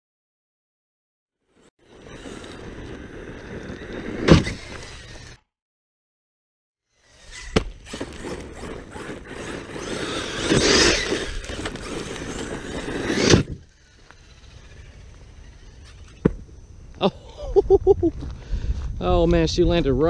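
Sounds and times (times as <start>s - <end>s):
rc truck running over gravel: 1.5s - 5.4s, 6.9s - 17.0s.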